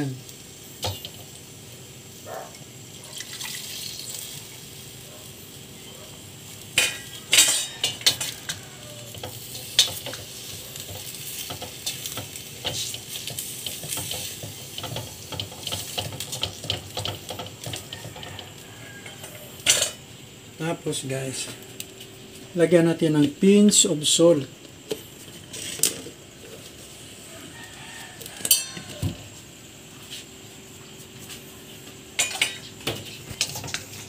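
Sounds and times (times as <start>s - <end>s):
food sizzling in a pot: 0.0s - 34.0s
wooden spoon stirring and scraping: 7.9s - 19.4s.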